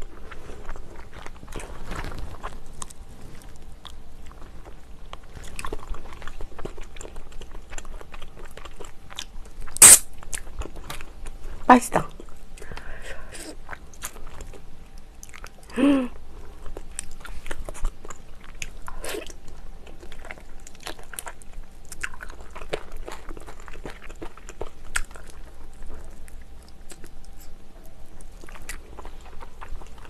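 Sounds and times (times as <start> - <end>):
wet chewing and smacking: 0.0 - 12.9, 13.5 - 15.7, 16.4 - 30.0
voice humming: 15.7 - 16.2.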